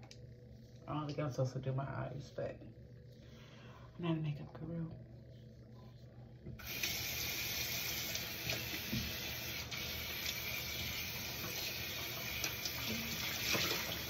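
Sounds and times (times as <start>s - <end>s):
water tap running into sink: 6.6s - 14.0s.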